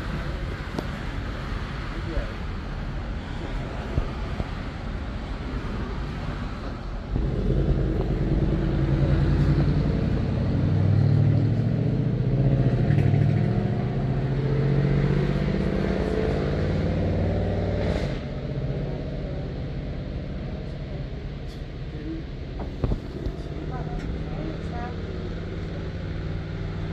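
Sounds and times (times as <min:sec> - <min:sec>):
vehicle engine running: 0:07.1 - 0:14.5.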